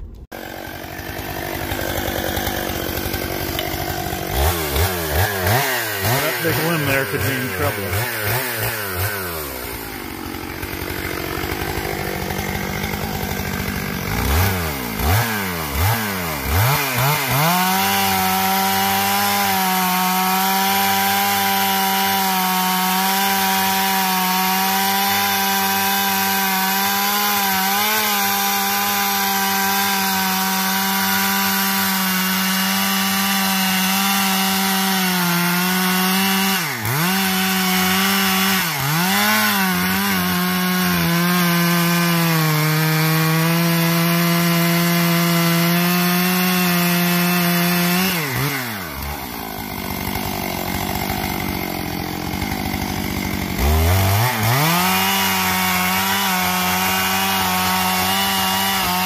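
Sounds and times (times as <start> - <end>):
chainsaw cutting tree trunk: 0.0 - 59.0.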